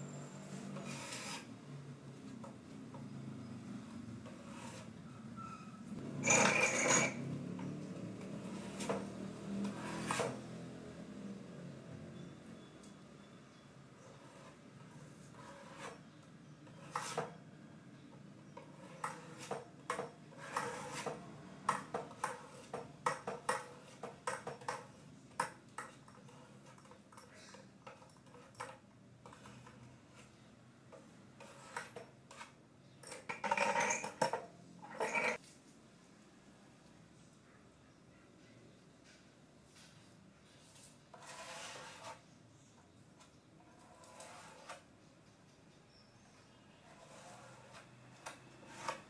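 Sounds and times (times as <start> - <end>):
putty knife scraping on wood: 0.6 - 1.5, 4.2 - 5.2, 8.2 - 10.5, 14.0 - 17.4, 18.5 - 24.8, 27.9 - 30.4, 31.3 - 35.4, 41.1 - 42.3, 43.2 - 44.9, 46.9 - 49.0.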